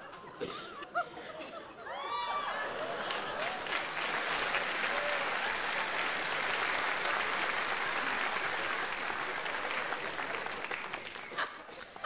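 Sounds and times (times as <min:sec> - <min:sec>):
audience applauding: 0:02.4 - 0:12.0.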